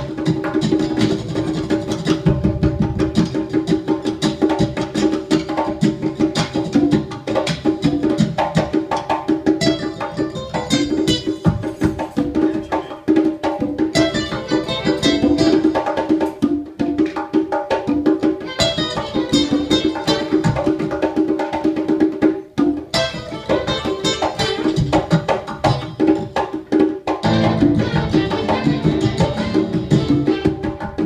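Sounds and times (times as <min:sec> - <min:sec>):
nylon-string guitar: 0:00.0 - 0:08.6, 0:09.4 - 0:13.1, 0:13.9 - 0:16.4, 0:18.4 - 0:20.9, 0:22.9 - 0:26.4, 0:27.2 - 0:31.0
bongos and congas: 0:00.0 - 0:31.0.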